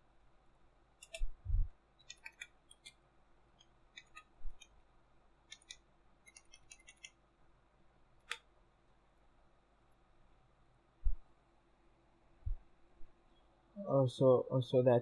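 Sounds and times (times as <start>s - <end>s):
computer keyboard typing: 1.0s - 1.3s, 2.0s - 3.0s, 3.6s - 4.8s, 5.5s - 7.2s.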